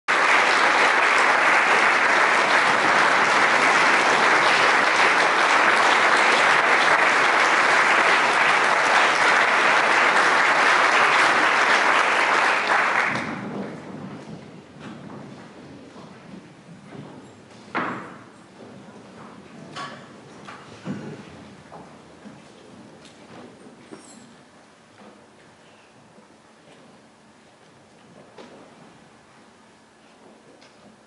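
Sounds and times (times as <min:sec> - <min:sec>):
audience applauding: 0:00.1 - 0:13.9.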